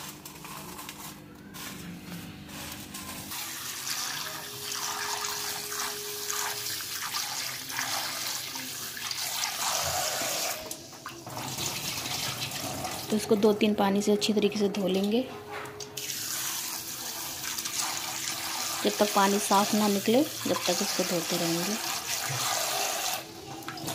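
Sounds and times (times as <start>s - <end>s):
tap water running into bowl: 3.3s - 13.3s.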